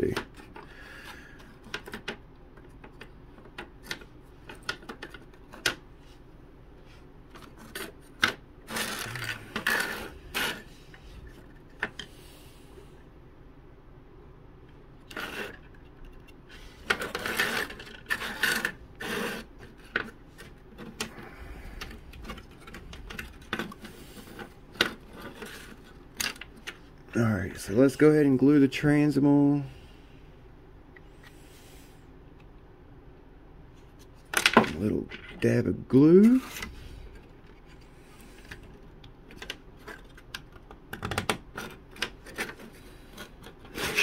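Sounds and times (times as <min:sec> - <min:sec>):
wooden parts clicking into slots: 0:38.4 - 0:44.0.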